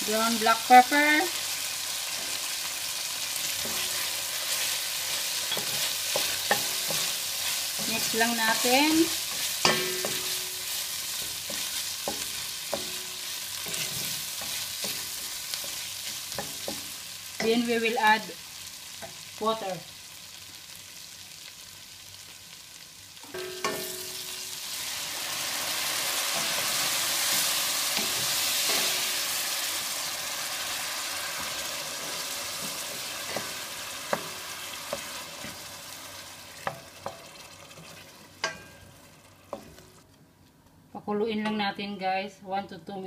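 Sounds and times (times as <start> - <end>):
water hissing in hot pan: 0.0 - 18.7, 24.3 - 38.4
chicken frying in a pan: 0.0 - 40.0.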